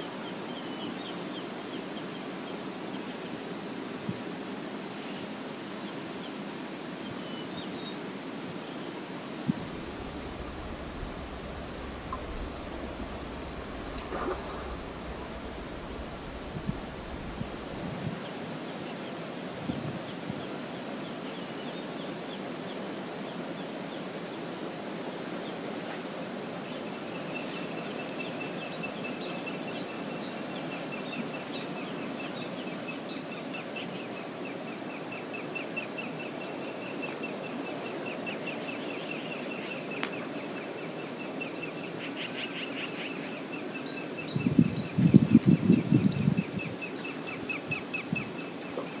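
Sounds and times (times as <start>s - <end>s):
river rushing: 8.5s - 18.8s
sharp high ticks: 9.7s - 17.9s.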